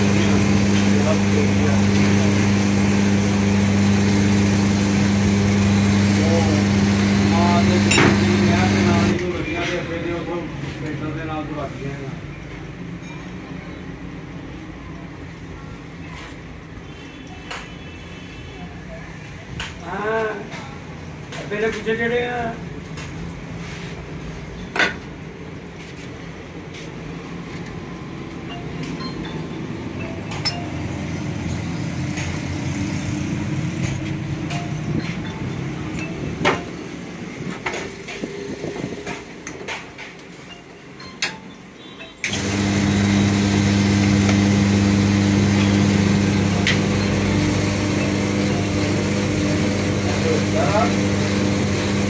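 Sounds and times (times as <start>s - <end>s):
electric motor humming: 0.0s - 9.2s, 42.3s - 52.0s.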